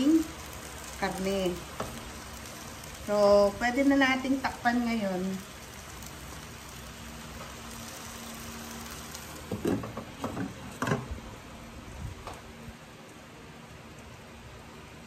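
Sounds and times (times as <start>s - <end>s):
meat sizzling in hot oil: 0.0s - 11.1s.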